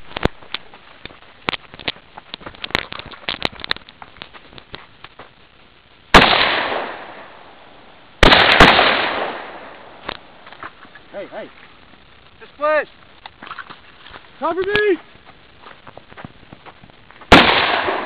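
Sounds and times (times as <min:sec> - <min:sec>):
cracks: 0:00.0 - 0:05.4, 0:08.2 - 0:11.1, 0:13.0 - 0:14.9
light clicks and rustles: 0:00.0 - 0:05.4
loud bangs: 0:08.2 - 0:09.8, 0:17.3 - 0:18.0.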